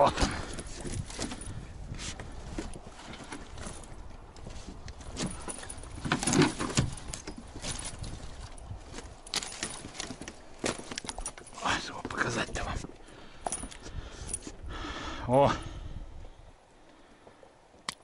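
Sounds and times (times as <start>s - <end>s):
net mesh rustling: 4.5s - 11.5s
small clicks and clinks: 13.4s - 14.5s.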